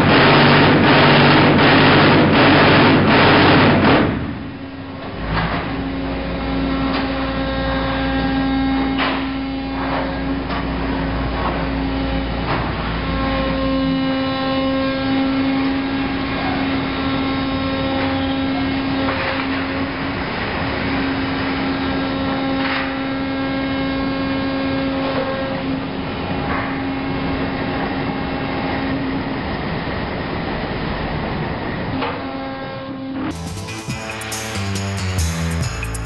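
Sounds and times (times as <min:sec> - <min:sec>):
dense machine rattling: 0:00.0 - 0:06.2
machine hum: 0:00.0 - 0:29.6, 0:33.0 - 0:36.0.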